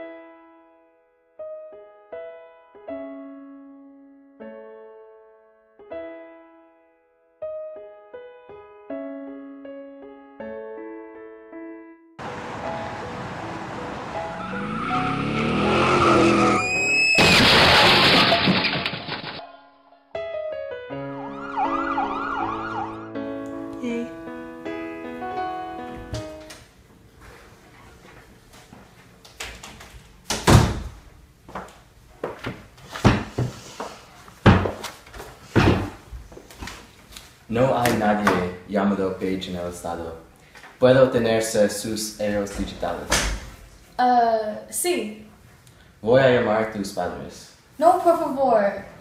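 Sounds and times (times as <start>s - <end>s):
background music: 0.0s - 16.8s, 19.4s - 26.6s
car engine revving: 12.2s - 18.2s
tires screeching: 12.2s - 18.8s
loud crash with breaking glass: 16.7s - 19.4s
footsteps: 31.5s - 37.4s
wooden chair knocking: 31.6s - 33.6s, 34.4s - 34.9s, 35.6s - 36.0s.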